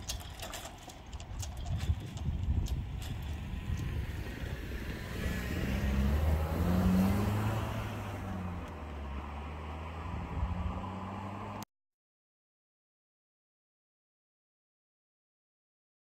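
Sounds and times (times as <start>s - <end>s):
vehicle engine passing: 2.2s - 11.6s.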